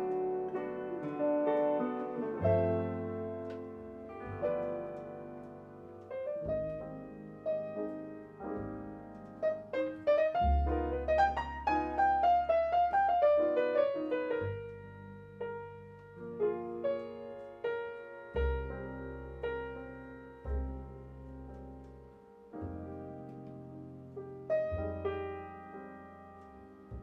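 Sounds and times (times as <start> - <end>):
jazz piano: 0.0 - 27.0.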